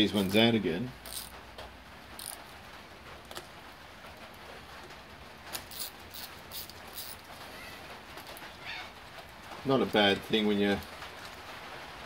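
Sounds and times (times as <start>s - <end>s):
socket ratchet metallic clicks: 1.0s - 1.3s, 2.2s - 2.4s.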